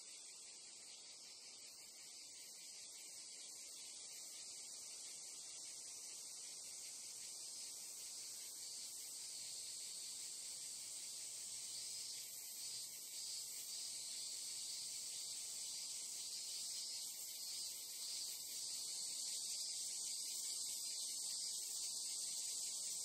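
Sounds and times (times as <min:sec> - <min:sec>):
crickets and cicadas buzzing: 0:00.0 - 0:23.0.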